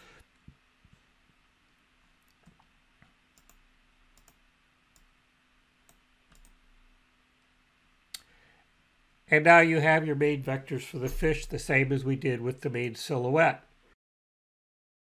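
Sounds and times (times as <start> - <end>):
faint computer mouse clicks: 3.4 - 3.6, 4.2 - 5.1, 5.8 - 6.6.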